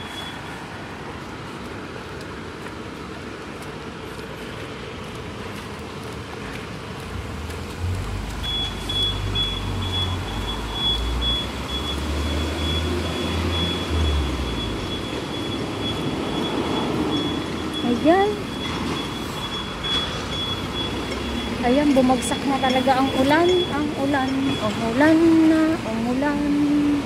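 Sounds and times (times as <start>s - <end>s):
road traffic noise: 0.0s - 27.0s
high-pitched pulsing beep: 8.5s - 25.4s.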